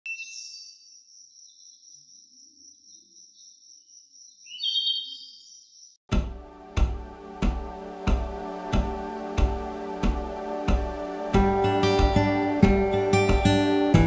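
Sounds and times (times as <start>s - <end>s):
music with a beat: 6.1s - 14.0s.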